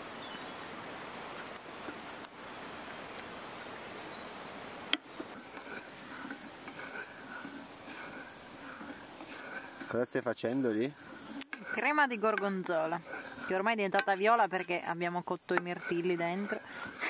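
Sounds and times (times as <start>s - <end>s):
spatula stirring sizzling pan: 5.0s - 17.0s.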